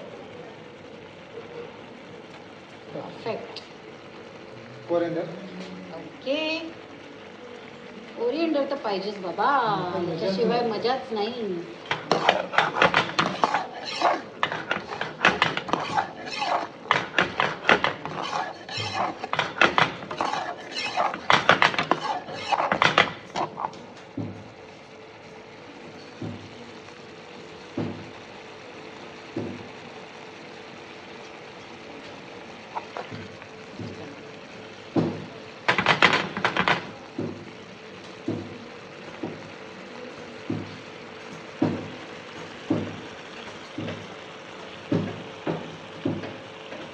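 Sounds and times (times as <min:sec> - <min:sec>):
curry boiling with low plops: 0:00.0 - 0:46.9
metal ladle scraping metal pan: 0:11.8 - 0:23.7
crackling and rattling: 0:11.8 - 0:24.2.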